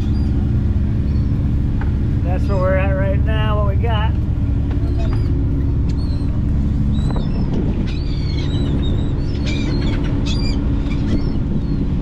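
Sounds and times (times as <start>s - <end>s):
boat engine running: 0.0s - 12.0s
seabirds chirping and squawking: 4.7s - 12.0s.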